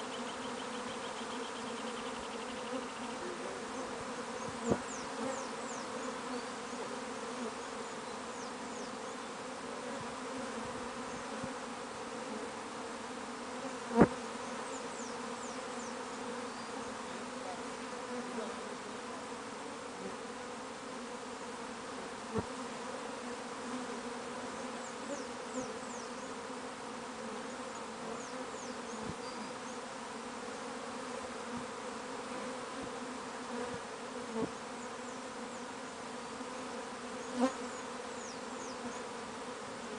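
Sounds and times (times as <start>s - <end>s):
bees buzzing: 0.0s - 39.9s.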